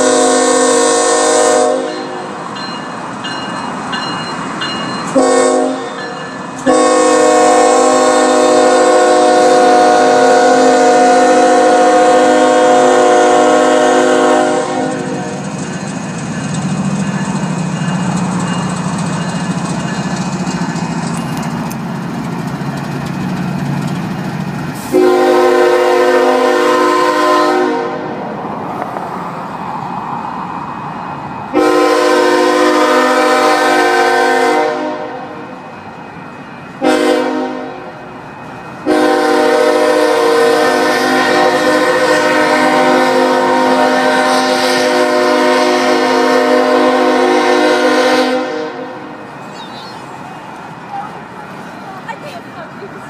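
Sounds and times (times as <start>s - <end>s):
train air horn blasts: 0.0s - 2.3s, 5.1s - 15.5s, 24.8s - 28.2s, 31.5s - 35.6s, 36.8s - 37.9s, 38.8s - 49.2s
freight train rumbling on bridge: 0.0s - 53.0s.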